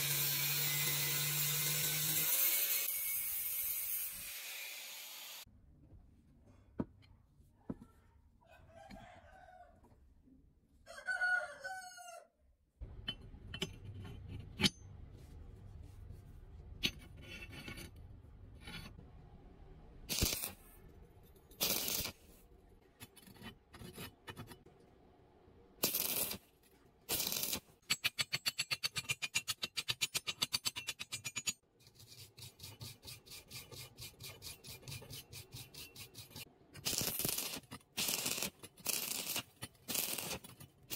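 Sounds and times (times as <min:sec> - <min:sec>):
rooster crowing: 0:08.4 - 0:09.8, 0:10.8 - 0:12.3
crackling stick welding: 0:20.1 - 0:20.6, 0:21.6 - 0:22.2, 0:25.8 - 0:26.4, 0:27.1 - 0:27.7, 0:36.8 - 0:40.5.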